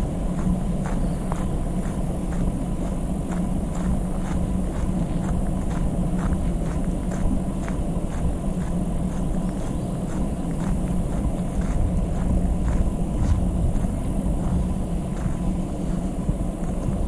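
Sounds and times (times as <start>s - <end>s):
footsteps on gravel: 0.0s - 17.0s
steady low rumble: 0.0s - 17.0s.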